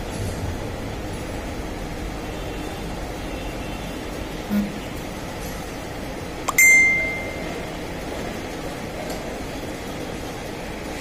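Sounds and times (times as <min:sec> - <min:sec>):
steady background hum: 0:00.0 - 0:11.0.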